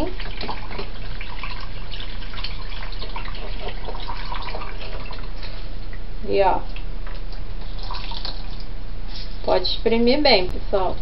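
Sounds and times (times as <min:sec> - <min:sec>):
water splashing and trickling: 0:00.0 - 0:05.6, 0:07.7 - 0:08.7
small water drips: 0:06.6 - 0:08.7.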